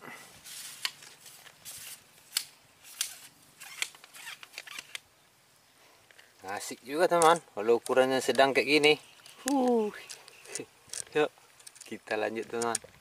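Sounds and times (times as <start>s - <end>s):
sharp clicks and crackles: 6.1s - 13.0s.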